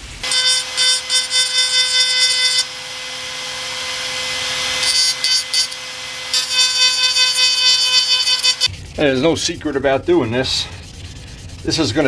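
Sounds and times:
rotary grinder whining: 0.0 - 8.8
grinder cutting into surface: 0.2 - 8.7.

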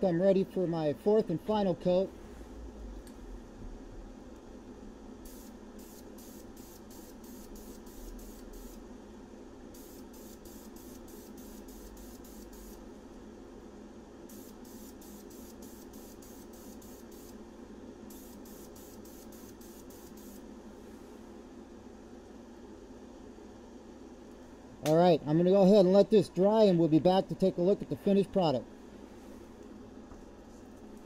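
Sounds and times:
steady low hum: 0.0 - 31.0
spray paint can hissing: 5.3 - 8.8, 9.8 - 12.8, 14.3 - 17.4, 18.1 - 20.4.

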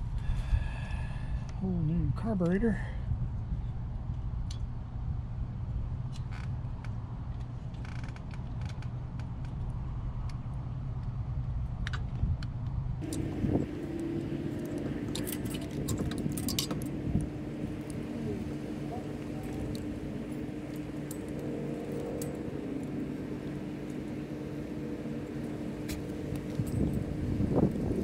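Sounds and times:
steady low hum: 0.0 - 7.8, 8.4 - 28.0
light metallic clicks and clinks: 13.0 - 22.9
higher steady hum: 13.0 - 28.0.

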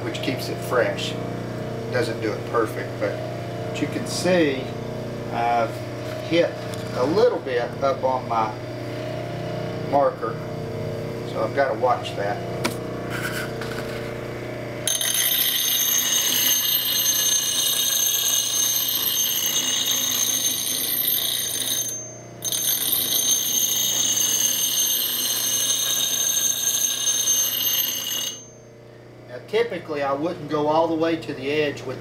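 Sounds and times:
grinder motor humming: 0.0 - 28.9.

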